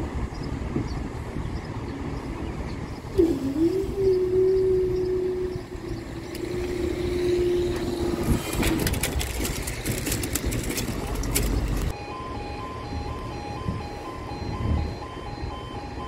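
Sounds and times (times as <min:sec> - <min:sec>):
train wheels clicking and rumbling: 0:04.9 - 0:11.9
crossing alarm two tones: 0:11.9 - 0:16.0.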